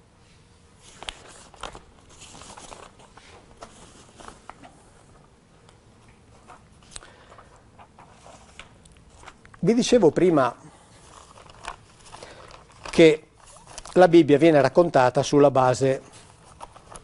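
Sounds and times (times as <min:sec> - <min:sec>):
paper rustling: 0:00.8 - 0:05.3, 0:06.3 - 0:10.3, 0:10.9 - 0:14.2, 0:16.0 - 0:17.0.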